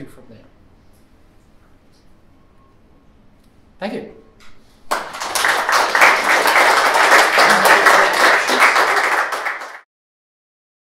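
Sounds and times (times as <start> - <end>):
audience applauding: 4.9 - 9.9.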